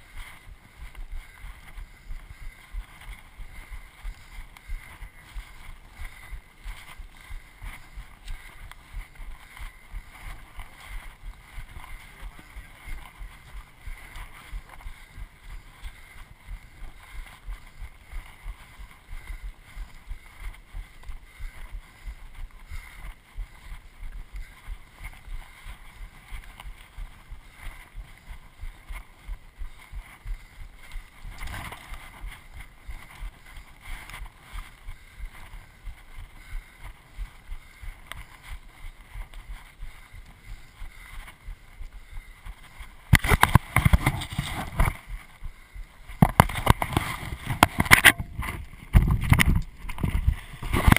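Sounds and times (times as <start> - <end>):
wind on microphone: 43.1 - 50.9.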